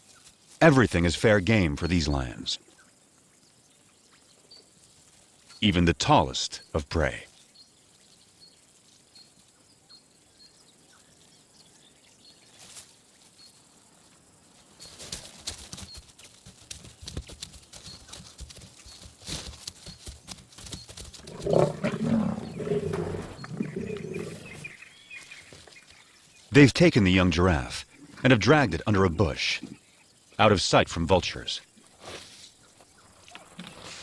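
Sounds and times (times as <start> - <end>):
lions growling: 21.2 - 24.8.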